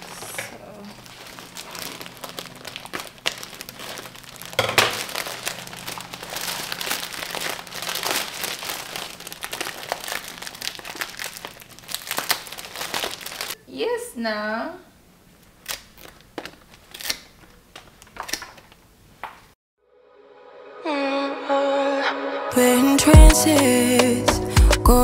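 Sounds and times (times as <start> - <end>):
bouquet wrapping crinkling: 0.0 - 13.6, 15.4 - 19.6.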